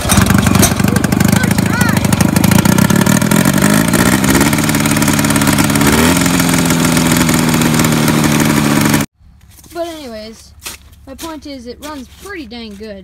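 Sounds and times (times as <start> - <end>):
two-stroke engine revving: 0.0 - 9.1.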